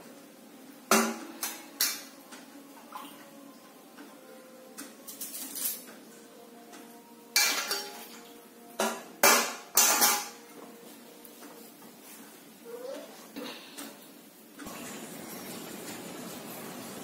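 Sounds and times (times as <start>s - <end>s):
metal pot and utensils clanking: 4.8s - 6.0s, 7.3s - 10.6s.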